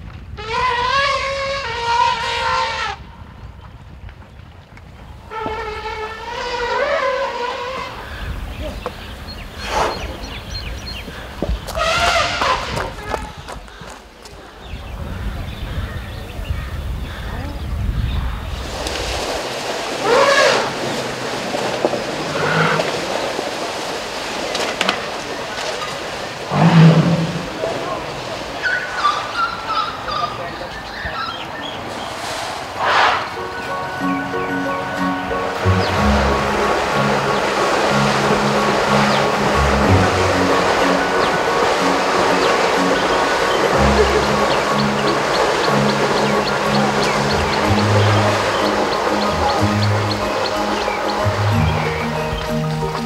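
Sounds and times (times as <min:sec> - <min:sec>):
elephants trumpeting: 0:00.4 - 0:03.0, 0:05.3 - 0:10.4, 0:11.2 - 0:13.4, 0:18.6 - 0:24.4, 0:25.3 - 0:30.5, 0:32.1 - 0:53.0.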